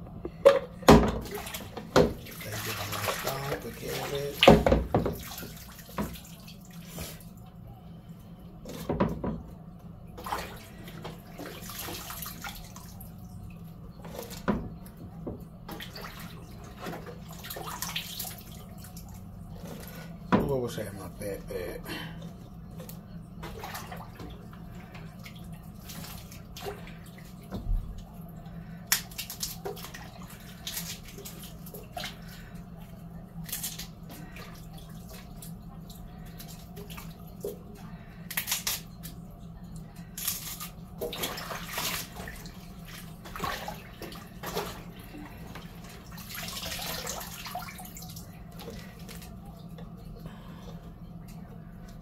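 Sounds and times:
steady low hum: 0.0 - 52.0
water splashing in a pot: 0.9 - 7.3, 40.0 - 49.6.

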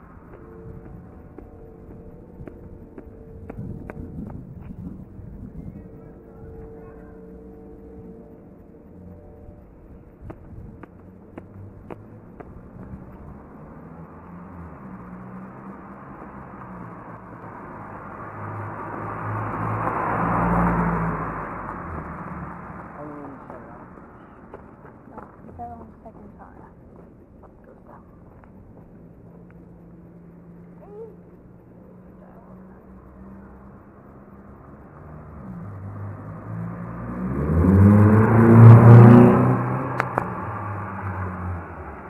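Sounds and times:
car engine driving past: 11.5 - 24.8, 31.9 - 42.0.

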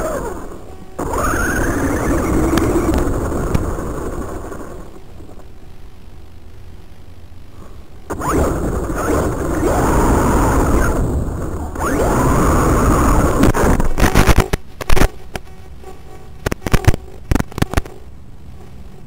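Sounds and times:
electric motor whining: 0.0 - 4.8, 8.1 - 13.8
loud sharp knocks and crackles: 2.4 - 4.6, 13.4 - 15.5, 16.4 - 17.9.

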